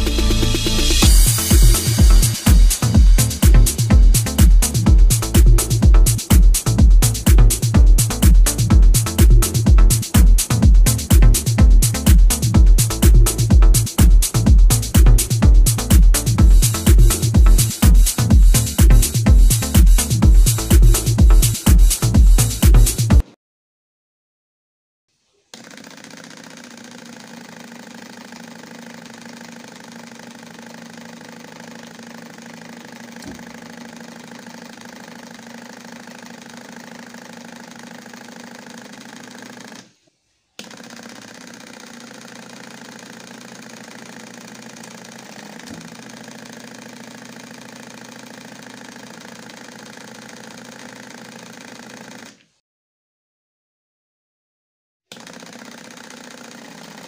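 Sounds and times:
small motor humming and rattling: 25.5s - 39.9s, 40.6s - 52.4s, 55.2s - 57.0s.

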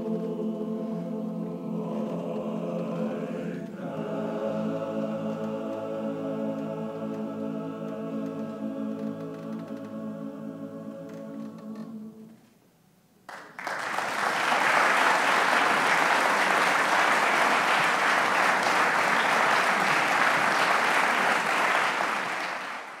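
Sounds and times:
audience applause: 13.3s - 23.0s.

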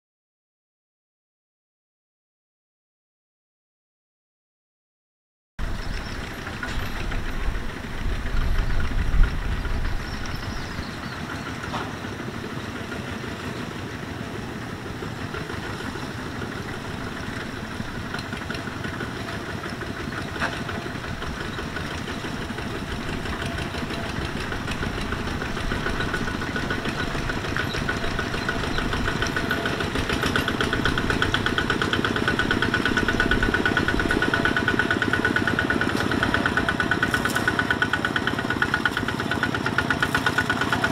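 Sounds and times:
diesel tractor engines chugging: 5.6s - 40.9s.

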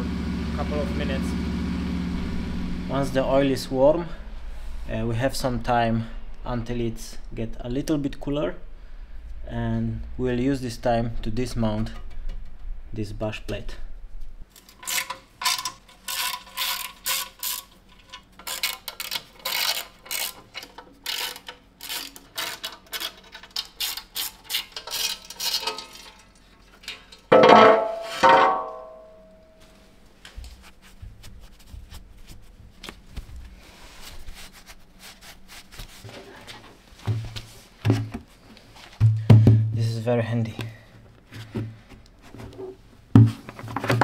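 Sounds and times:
ratchet wrench clicking: 14.8s - 25.6s
loud metallic clang: 27.3s - 29.5s.

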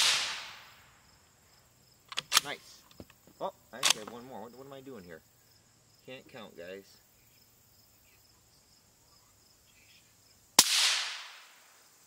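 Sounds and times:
rifle shot with echo: 0.0s - 0.7s, 10.6s - 11.6s.

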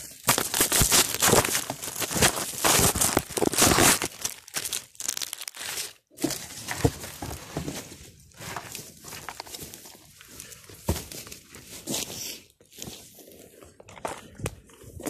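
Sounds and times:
dry debris crackling: 0.0s - 7.5s, 8.3s - 10.9s.

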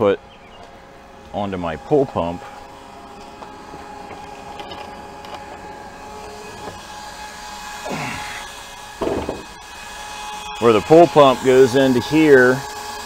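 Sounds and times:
electric hum of water pumps: 0.0s - 13.0s
brief thump: 9.0s - 9.5s.

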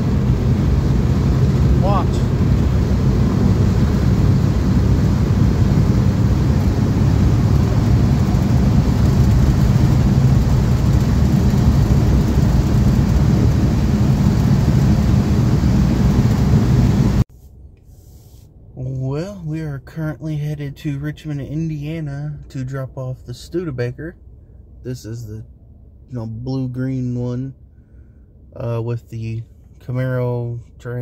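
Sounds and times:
vehicle engine and tyres drone: 0.0s - 17.2s.

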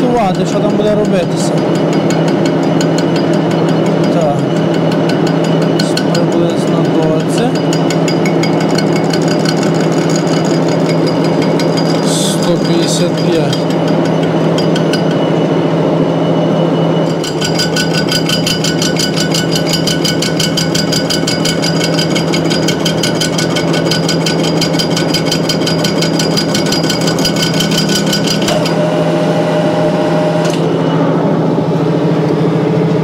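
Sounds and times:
lathe motor hum: 0.0s - 33.0s
cutting tool clattering on metal: 0.6s - 15.2s.

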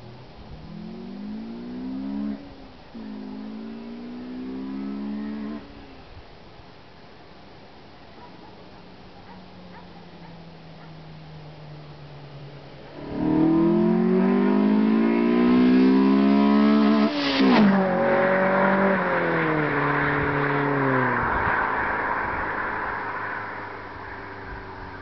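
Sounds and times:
car accelerating and passing: 0.6s - 6.0s, 10.1s - 25.0s.

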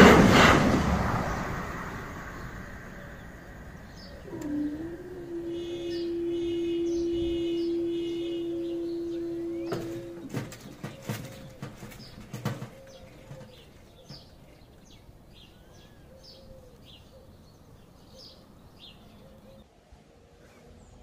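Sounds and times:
small birds chirping: 1.8s - 19.7s.

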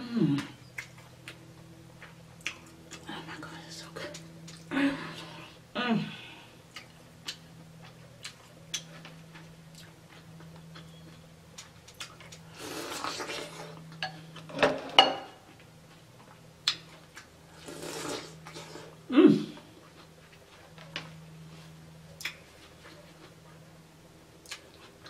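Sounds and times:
faint steady hum: 0.0s - 25.0s
slurping bite: 17.6s - 19.0s.

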